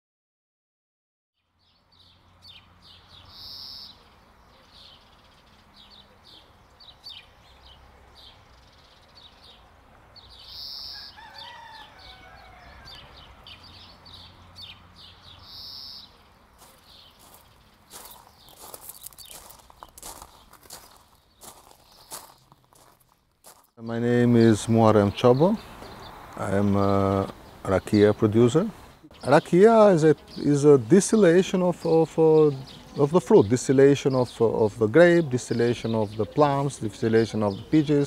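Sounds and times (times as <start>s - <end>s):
small bird chirps: 1.4s - 23.0s
short high bird calls: 3.2s - 5.0s, 10.4s - 14.8s, 15.4s - 22.4s
rooster crowing: 10.8s - 13.6s.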